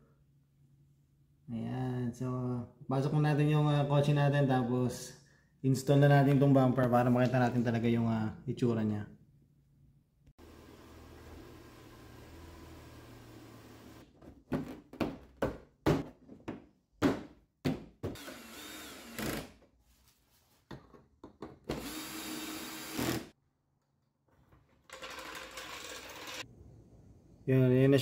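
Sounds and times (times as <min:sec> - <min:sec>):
power drill running: 0:18.2 - 0:19.4, 0:21.8 - 0:23.2.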